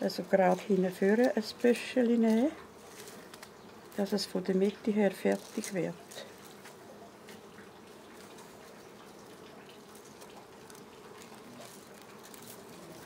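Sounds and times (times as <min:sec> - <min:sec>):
dry grass stalks rustling: 0:00.0 - 0:13.0.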